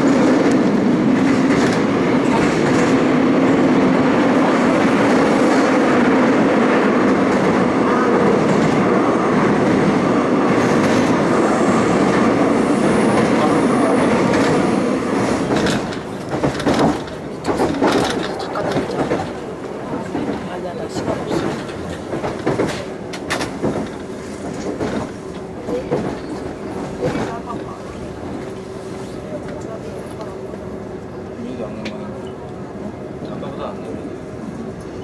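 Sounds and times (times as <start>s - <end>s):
subway train rumbling: 0.0s - 35.0s
train wheel clacks: 13.1s - 27.8s.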